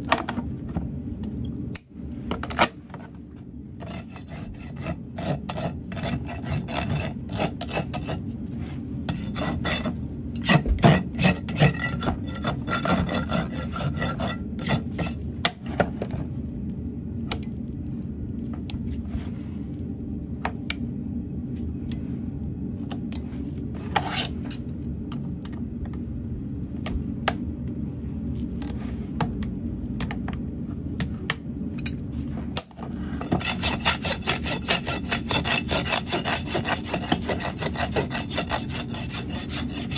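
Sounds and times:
rasp filing a hoof: 3.8s - 15.2s, 33.2s - 39.9s.

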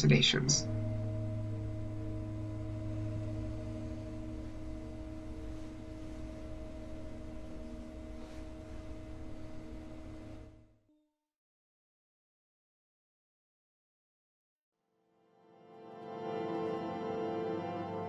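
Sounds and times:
singing bowls droning: 0.0s - 10.8s, 15.7s - 18.0s.

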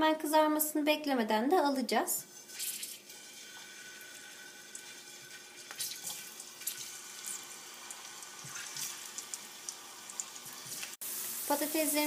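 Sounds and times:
oil crackling: 5.6s - 11.7s
oil hissing in a frying pan: 6.9s - 12.0s.

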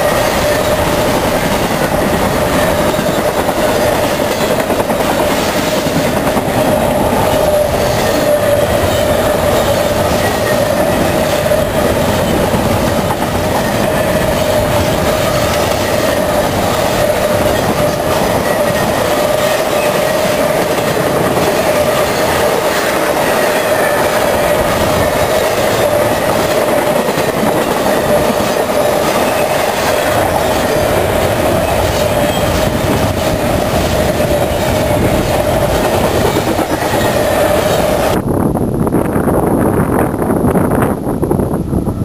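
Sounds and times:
freight train wheels rumbling: 0.0s - 42.0s
wheel squeal: 27.9s - 35.3s.

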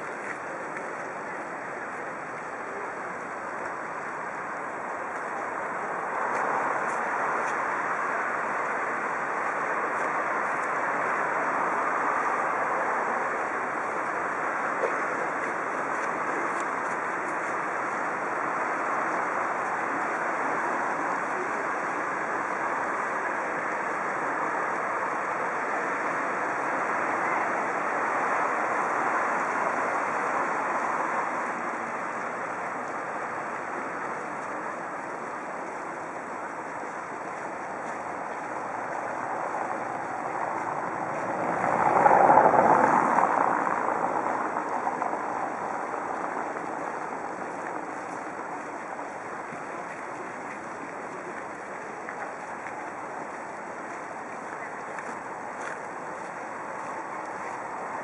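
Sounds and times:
distant road traffic: 0.0s - 58.0s
vehicle passing close: 38.0s - 47.4s.

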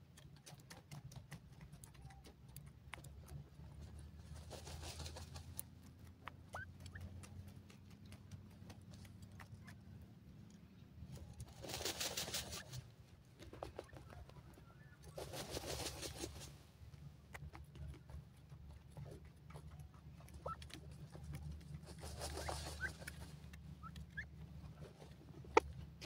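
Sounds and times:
scratching and rustling in dry soil: 0.0s - 26.0s
chick peep: 19.5s - 21.4s, 22.0s - 23.2s.

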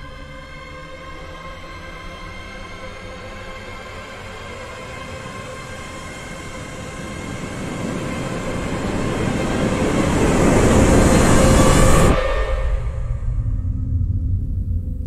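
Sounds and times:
held drone: 0.0s - 15.0s
blast wave roar: 4.3s - 15.0s
low rumble: 5.9s - 15.0s.

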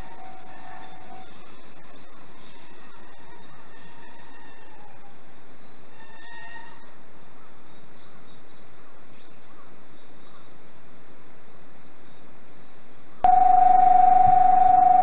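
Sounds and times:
outdoor background hiss: 0.0s - 15.0s
faint bird chirps: 13.0s - 15.0s
electronic warning tone: 13.2s - 15.0s.

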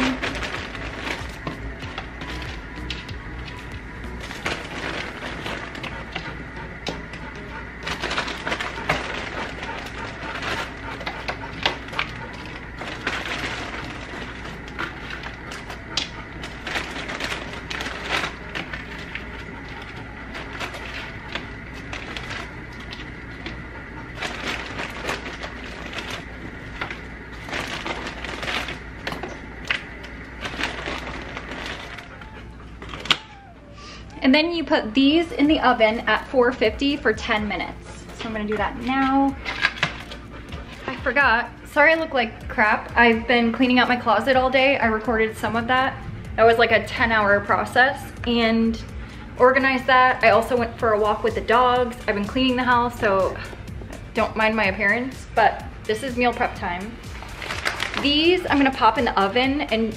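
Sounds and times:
plastic bag crackling: 0.0s - 34.2s, 55.2s - 59.9s.

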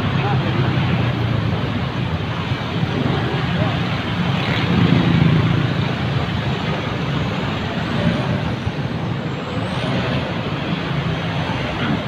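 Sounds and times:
cars driving past: 0.0s - 12.0s
motorcycles driving past: 2.3s - 8.6s.

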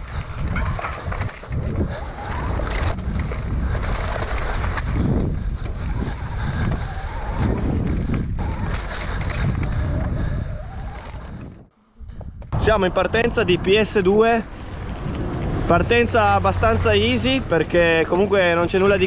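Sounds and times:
wind noise on microphone: 0.0s - 13.8s
bike rattling: 0.0s - 19.0s
bike tyre roar: 0.0s - 19.0s.

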